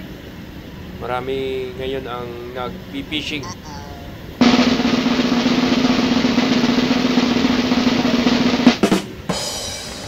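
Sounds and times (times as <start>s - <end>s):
snare drum roll: 4.4s - 9.1s.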